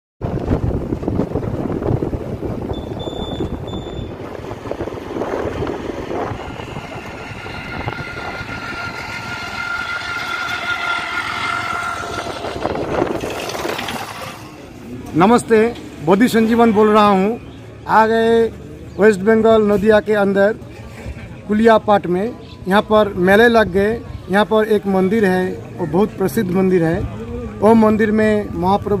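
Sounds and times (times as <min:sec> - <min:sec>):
vehicle low rumble: 0:00.2 - 0:29.0
short high beeps: 0:02.7 - 0:04.1.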